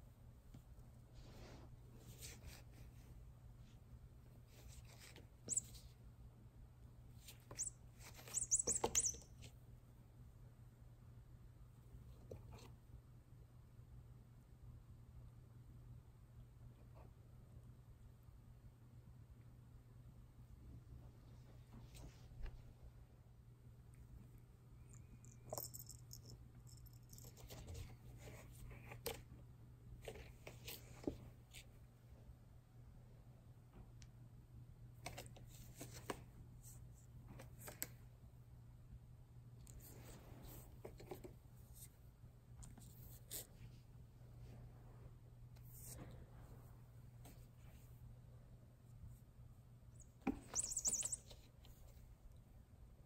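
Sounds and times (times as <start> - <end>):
toy mouse squeaks: 5.5 - 5.8, 7.5 - 9.5, 50.4 - 51.4.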